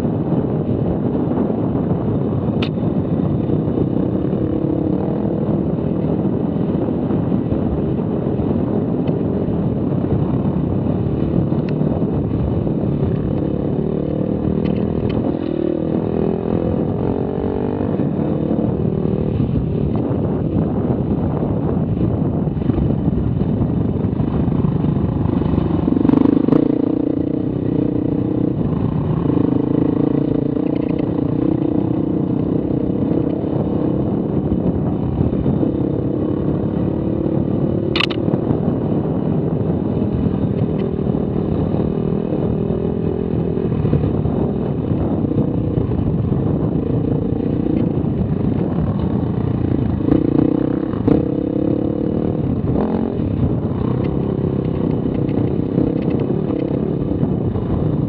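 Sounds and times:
dirt bike engine revving: 0:49.9 - 0:53.1.

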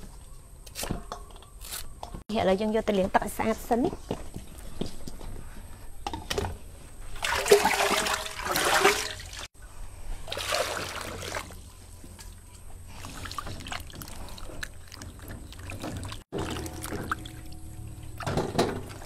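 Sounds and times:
water sloshing in metal basin: 0:06.1 - 0:19.0
water pouring and splashing: 0:07.1 - 0:11.6, 0:12.9 - 0:19.0.

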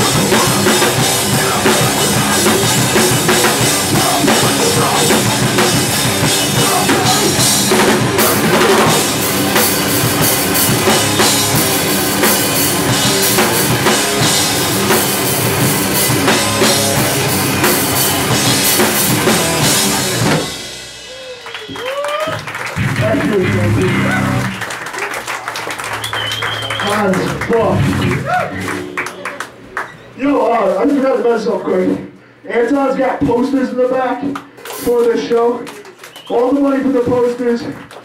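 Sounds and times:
drum kit: 0:00.0 - 0:24.8, 0:25.8 - 0:29.6
punk band playing live: 0:00.0 - 0:29.6.

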